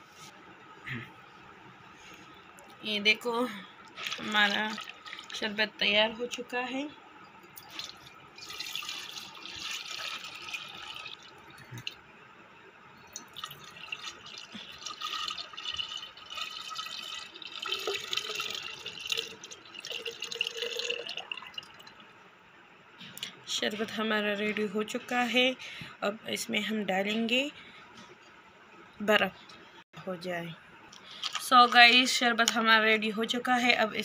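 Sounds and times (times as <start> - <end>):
liquid pouring into pitcher: 3.9 - 5.5, 7.6 - 11.9, 13.1 - 22.0.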